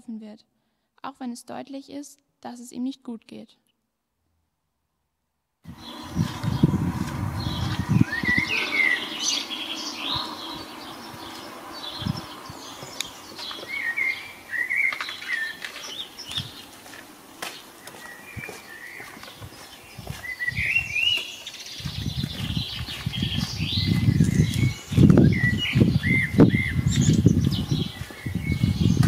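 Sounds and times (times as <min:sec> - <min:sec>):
low thumps: 0:05.7 - 0:08.6
songbird chirping: 0:05.7 - 0:29.0.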